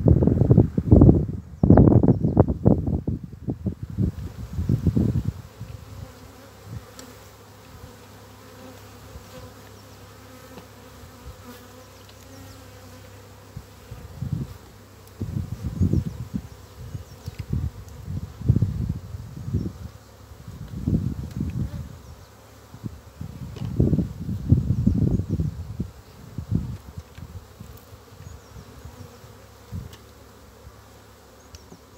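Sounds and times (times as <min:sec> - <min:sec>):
wind rumble on microphone: 0:00.0 - 0:06.9, 0:13.6 - 0:29.1, 0:29.7 - 0:30.0
bees buzzing: 0:03.6 - 0:31.9.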